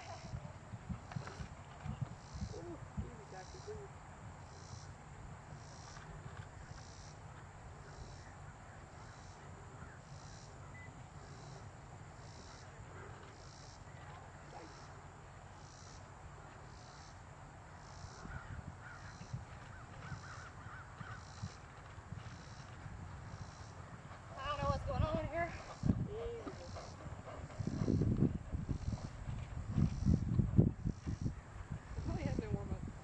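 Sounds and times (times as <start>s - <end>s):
high pulsing chirping: 25.7s - 29.2s.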